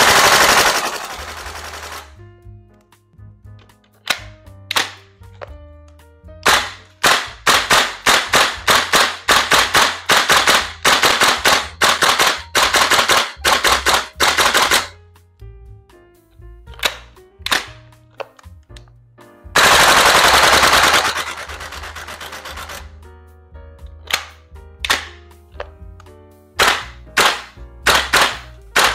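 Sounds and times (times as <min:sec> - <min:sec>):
airsoft rifle shots: 0:00.0 - 0:02.1, 0:04.1 - 0:05.0, 0:06.4 - 0:15.0, 0:16.8 - 0:17.8, 0:19.6 - 0:22.8, 0:24.1 - 0:25.2, 0:26.6 - 0:28.9.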